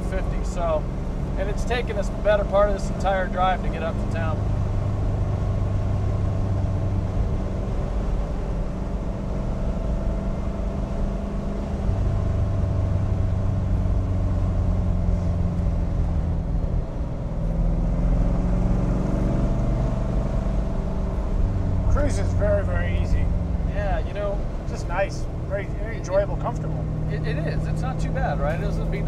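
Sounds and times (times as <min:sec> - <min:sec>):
car engine running: 0:00.0 - 0:29.0.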